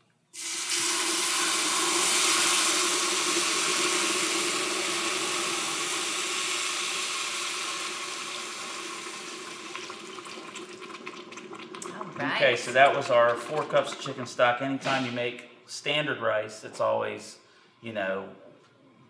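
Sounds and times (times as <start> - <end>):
stock boiling and splattering in pot: 0.3 - 14.6.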